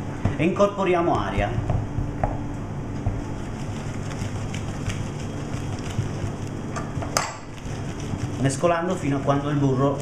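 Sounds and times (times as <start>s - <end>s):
wooden spoon stirring risotto: 7.5s - 10.0s.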